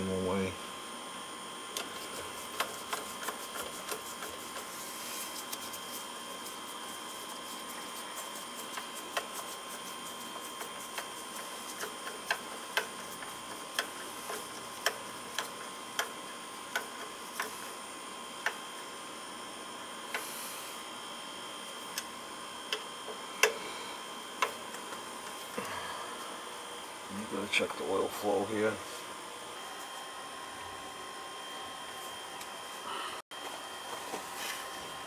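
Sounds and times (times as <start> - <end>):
faint high whine: 17.2 - 35.0.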